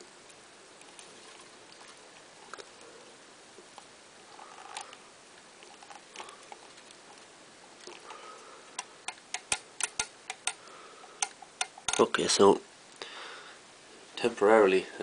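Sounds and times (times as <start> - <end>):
plastic parts clicking: 11.2 - 12.1.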